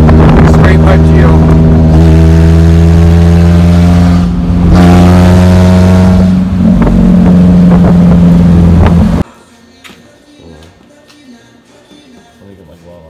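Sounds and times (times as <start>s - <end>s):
loud quad bike engine revving: 0.0s - 9.2s.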